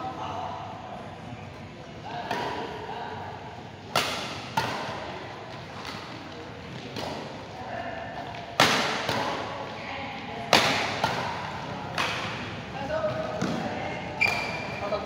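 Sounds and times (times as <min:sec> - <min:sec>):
racket hitting shuttlecock: 0:03.9 - 0:05.0, 0:06.8 - 0:07.3, 0:08.4 - 0:09.5, 0:10.4 - 0:12.5.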